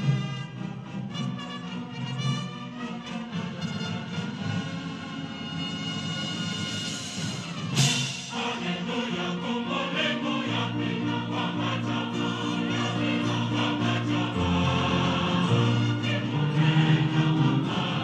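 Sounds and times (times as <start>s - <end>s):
brass band playing: 0.0s - 9.6s, 11.4s - 18.0s
violins: 0.0s - 18.0s
choir singing a hymn: 7.8s - 18.0s.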